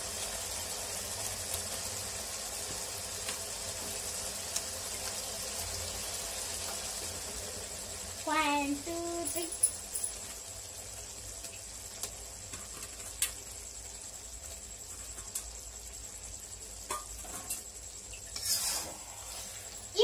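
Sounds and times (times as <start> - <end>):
food sizzling quietly: 0.0 - 20.0
spatula scraping: 18.3 - 19.7.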